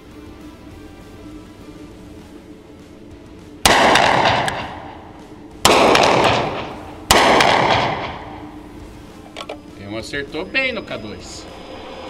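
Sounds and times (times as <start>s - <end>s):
revolver shots echoing: 3.6s - 8.6s.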